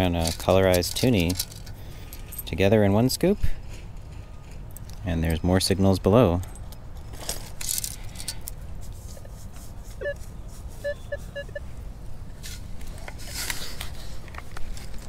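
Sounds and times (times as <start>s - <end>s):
metal detector beeps: 10.0s - 10.2s, 10.8s - 11.6s.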